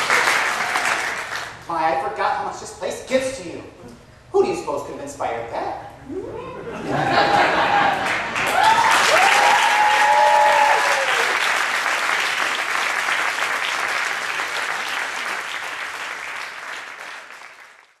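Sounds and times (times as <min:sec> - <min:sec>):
audience applauding: 0:00.0 - 0:01.6, 0:07.2 - 0:18.0.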